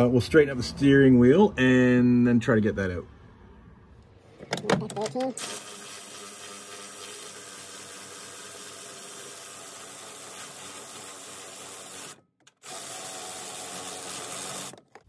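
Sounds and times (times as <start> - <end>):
power ratchet spinning bolt: 8.9 - 15.0.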